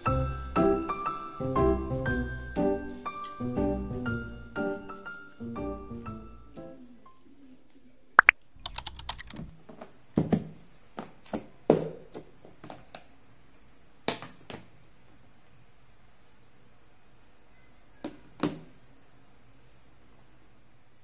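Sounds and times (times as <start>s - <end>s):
small plastic clicks: 8.2s - 9.5s.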